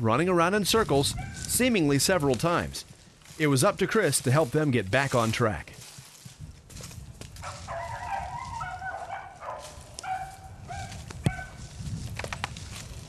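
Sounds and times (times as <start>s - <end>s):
dogs baying: 7.4s - 11.6s.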